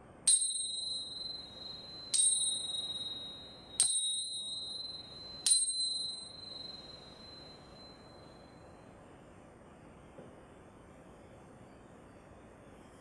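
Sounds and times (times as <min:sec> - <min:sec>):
small hand cymbals ringing: 0:00.0 - 0:08.8.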